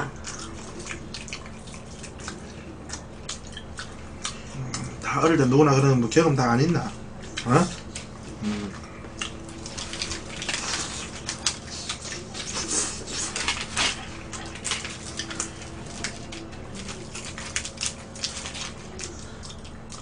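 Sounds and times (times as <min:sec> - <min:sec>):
chewing: 0:00.0 - 0:05.4, 0:06.6 - 0:20.0
fried food crackling: 0:06.6 - 0:20.0
paper wrapper rustling: 0:09.4 - 0:19.1.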